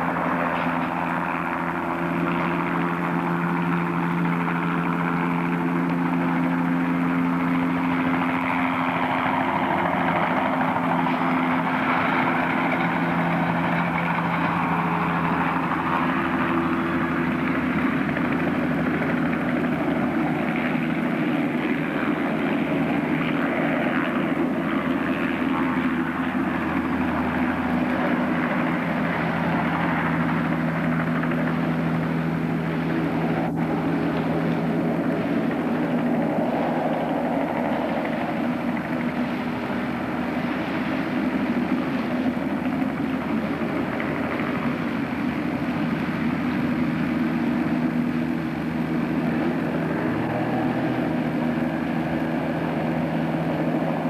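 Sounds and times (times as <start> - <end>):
outboard motor running: 0.0 - 54.0.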